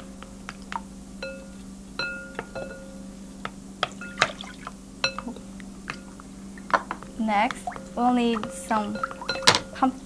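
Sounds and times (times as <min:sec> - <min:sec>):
low steady hum: 0:00.0 - 0:10.0
utensil clinking against glass bowl: 0:07.8 - 0:09.8.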